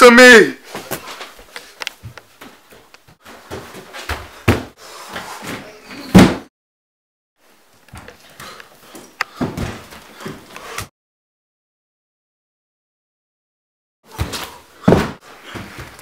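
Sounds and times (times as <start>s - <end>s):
feet thudding down carpeted stairs: 0.8s - 5.6s, 7.9s - 10.9s, 14.1s - 16.0s.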